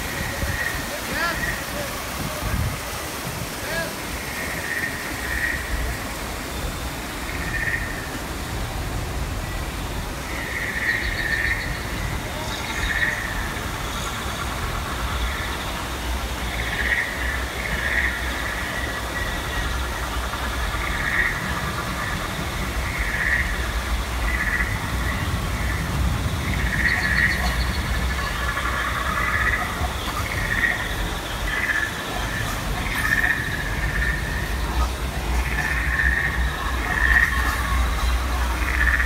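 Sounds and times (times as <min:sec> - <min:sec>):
stream and small waterfalls rushing: 0:00.0 - 0:39.0
frog-like croaking calls: 0:04.1 - 0:06.0, 0:07.3 - 0:08.2, 0:16.4 - 0:39.0.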